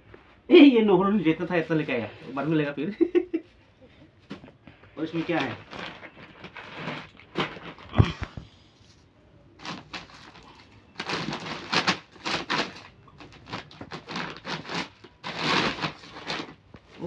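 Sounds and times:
plastic sack rustling and crinkling: 4.3s - 17.0s.

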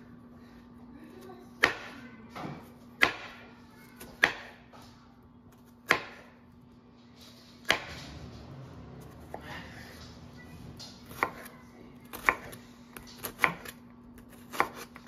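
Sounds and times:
knife slicing onion: 5.5s - 6.5s, 7.3s - 10.0s, 11.0s - 15.0s.

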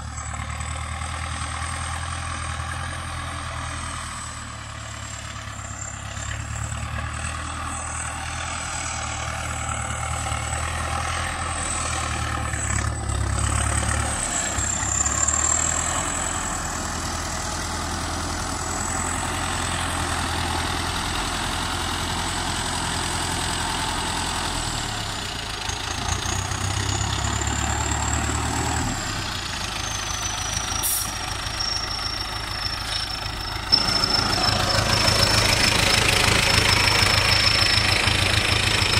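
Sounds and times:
tractor diesel engine running: 0.0s - 38.9s.

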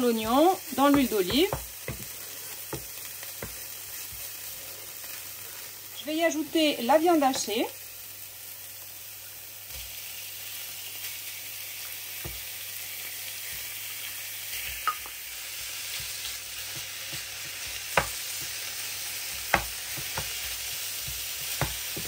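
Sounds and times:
wooden spoon knocking on pan: 0.0s - 4.3s, 16.0s - 18.6s, 19.2s - 22.0s
meat sizzling in a frying pan: 0.0s - 22.0s.

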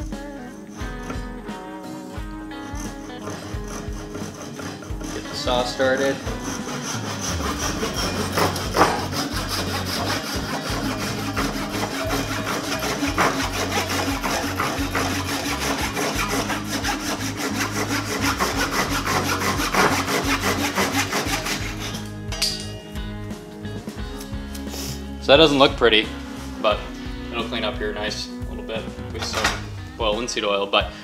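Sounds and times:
hand saw rasping through wood: 0.4s - 1.3s, 2.5s - 22.2s.

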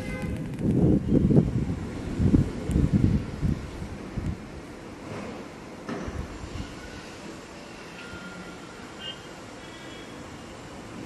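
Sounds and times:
wind buffeting microphone: 0.0s - 5.0s.

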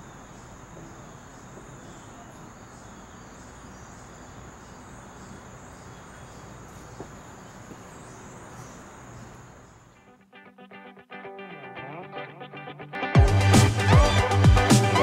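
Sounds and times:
insect chorus trilling: 0.0s - 10.0s
outdoor background hiss: 0.0s - 15.0s.

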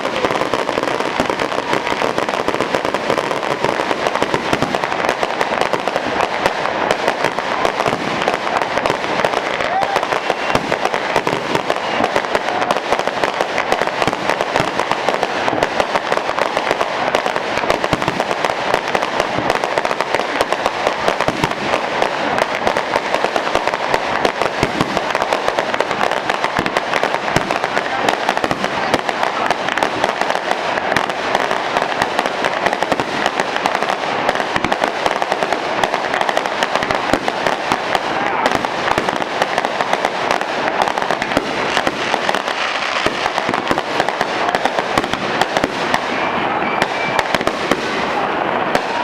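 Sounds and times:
fireworks crackling and popping: 0.0s - 49.0s.

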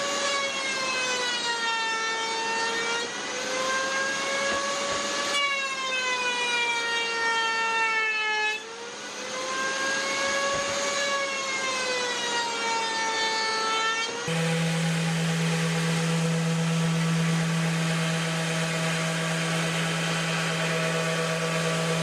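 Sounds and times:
router cutting wood: 0.0s - 22.0s
low steady machine hum: 14.3s - 22.0s.

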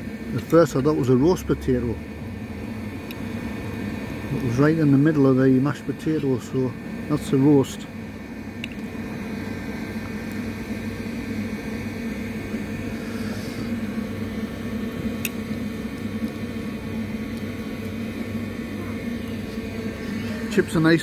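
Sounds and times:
low mechanical hum: 0.0s - 21.0s.

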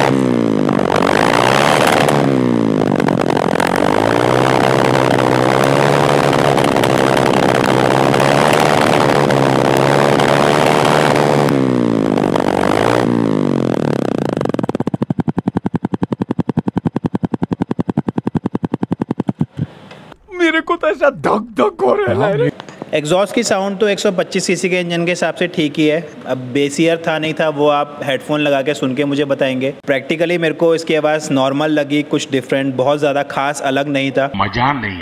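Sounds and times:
motorcycle engine revving and idling: 0.0s - 20.2s.

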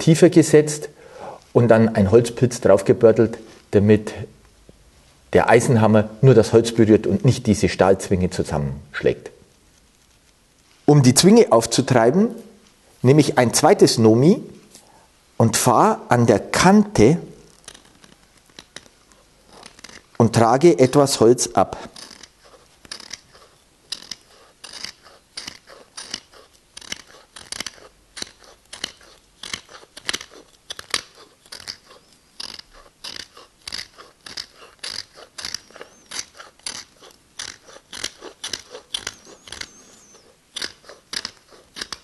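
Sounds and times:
chisel scraping wood: 17.5s - 42.0s.

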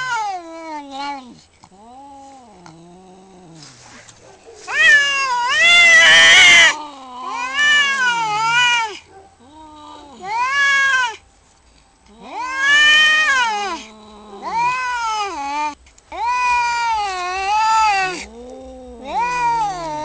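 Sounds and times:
cats yowling: 0.0s - 2.9s, 4.6s - 11.2s, 12.1s - 20.0s.

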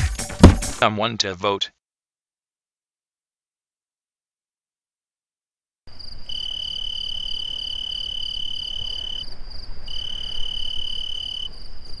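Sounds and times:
insect chirping trill: 5.9s - 12.0s.

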